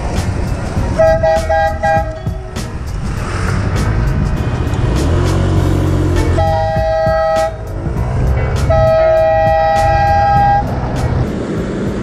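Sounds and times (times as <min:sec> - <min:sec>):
scooter engine humming: 0:00.0 - 0:12.0
air horn two-note chord: 0:01.0 - 0:02.3, 0:06.1 - 0:07.7, 0:08.5 - 0:11.0.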